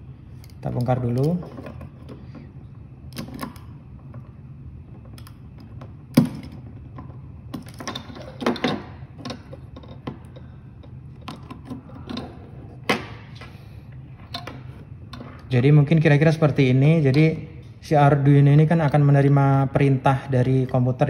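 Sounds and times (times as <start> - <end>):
low steady hum: 0.0 - 21.0
electronics clicks and knocks: 0.6 - 13.5, 14.1 - 15.6.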